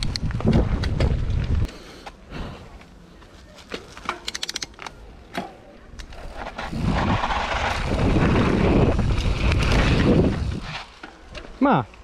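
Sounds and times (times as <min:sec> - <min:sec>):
wind rush on microphone: 0:00.0 - 0:01.7, 0:06.7 - 0:10.8
bicycle clicking and knocking: 0:04.0 - 0:06.1.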